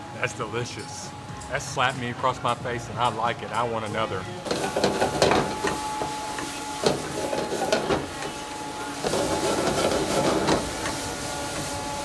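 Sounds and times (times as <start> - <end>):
metal ladle scraping pan: 4.5 - 11.1
meat sizzling in hot oil: 4.5 - 12.0.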